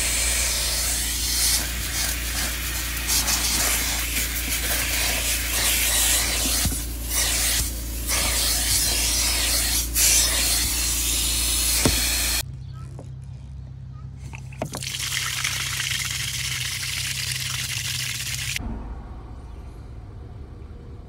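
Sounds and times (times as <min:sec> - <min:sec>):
motor hum: 0:00.0 - 0:21.0
hiss of spray and suction: 0:00.5 - 0:12.4.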